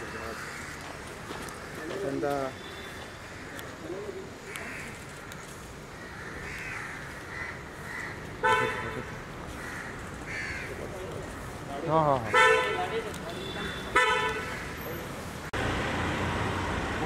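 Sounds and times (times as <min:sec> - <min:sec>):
crows cawing: 0:00.0 - 0:12.8, 0:13.4 - 0:14.9
car horn toot: 0:08.4 - 0:09.1, 0:12.3 - 0:14.5.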